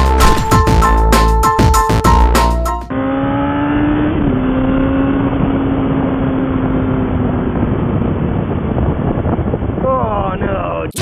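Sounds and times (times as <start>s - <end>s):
electronic music: 0.0s - 2.9s
motorcycle engine running: 2.9s - 9.8s
heavy wind noise: 4.1s - 11.0s.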